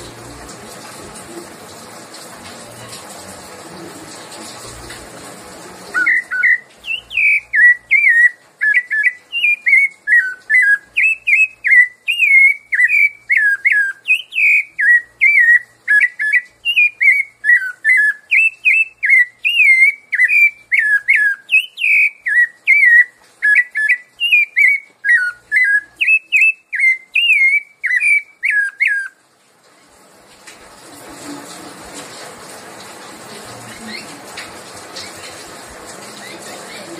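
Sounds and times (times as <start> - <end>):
thrush singing whistled notes: 5.9 - 29.2.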